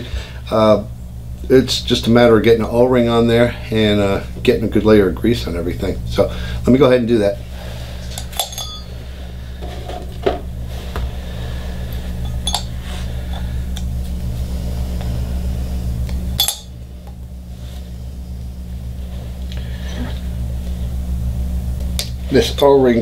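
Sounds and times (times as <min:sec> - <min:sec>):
machine humming low: 0:00.0 - 0:23.0
metal parts clicking and clinking: 0:08.1 - 0:08.9, 0:12.2 - 0:12.7, 0:16.4 - 0:16.7.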